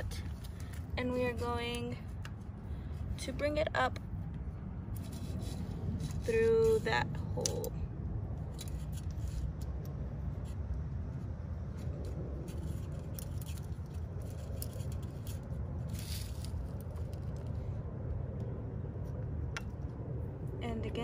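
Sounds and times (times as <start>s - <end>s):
steady low rumble: 0.0s - 21.0s
wire scraping in bike frame: 4.9s - 7.7s, 8.4s - 17.7s.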